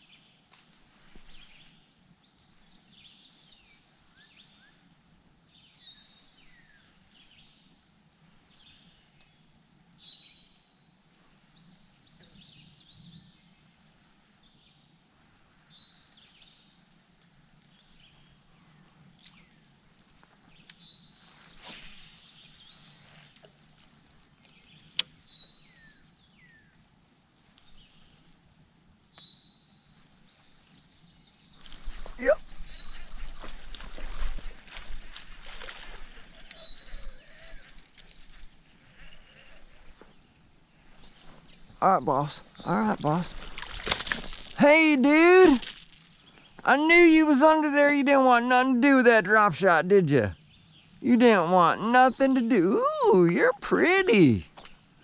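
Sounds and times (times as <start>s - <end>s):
shrill insect chorus: 0.0s - 55.0s
falling whistled bird calls: 35.8s - 37.8s.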